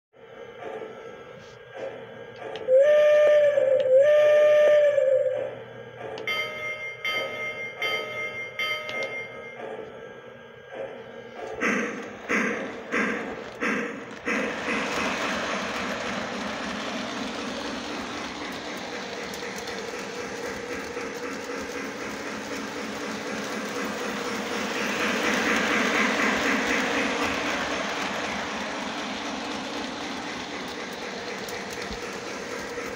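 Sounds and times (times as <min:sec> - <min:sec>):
model train hum: 0:00.2 - 0:32.9
model train whistle blasts: 0:02.7 - 0:05.5
bell ringing: 0:06.2 - 0:09.9.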